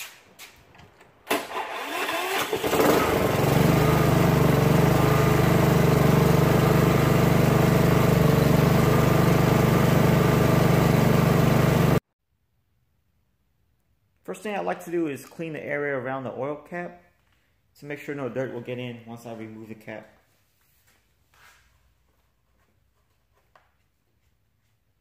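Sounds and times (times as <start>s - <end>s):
lawn mower engine running: 1.3s - 12.0s.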